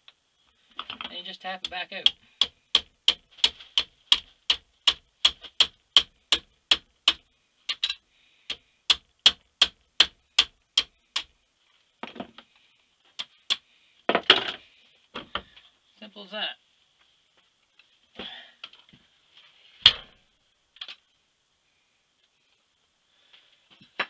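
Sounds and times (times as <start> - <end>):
hammer tapping wooden dowels: 1.6 - 11.3.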